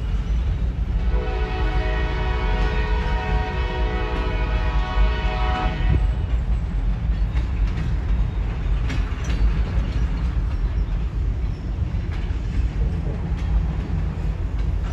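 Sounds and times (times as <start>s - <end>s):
freight train rumbling: 0.0s - 14.9s
train cars clanking: 0.0s - 14.9s
locomotive air horn: 1.1s - 6.0s.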